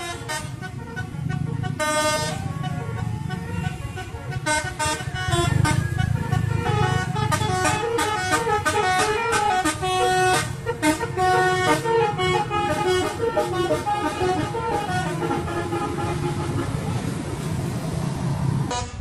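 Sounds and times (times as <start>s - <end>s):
bus engine running: 0.0s - 19.0s
multi-note air horn tune: 6.8s - 16.7s.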